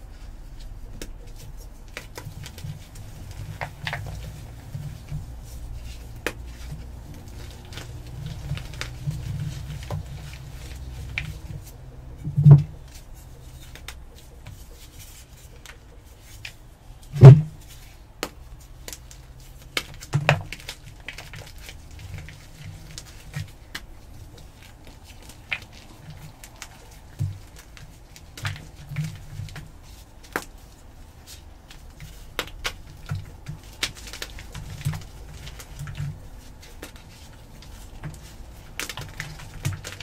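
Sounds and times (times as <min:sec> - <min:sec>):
chalk crackling as it breaks: 0:00.6 - 0:11.8, 0:17.2 - 0:40.0
loud thuds: 0:17.2 - 0:17.6.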